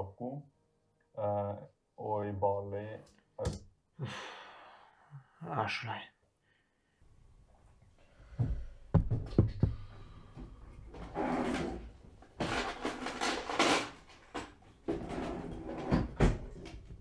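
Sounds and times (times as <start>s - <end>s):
drawer sliding and rattling: 11.0s - 17.0s.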